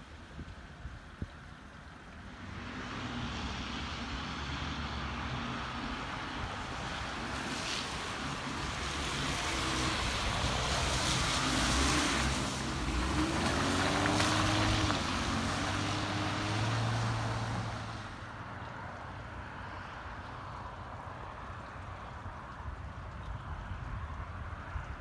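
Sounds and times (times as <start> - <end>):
vehicle passing by: 2.2 - 18.4.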